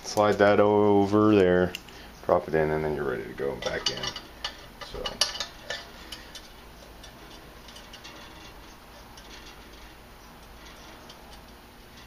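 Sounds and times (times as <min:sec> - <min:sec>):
small metal parts clicking: 0:03.6 - 0:12.0.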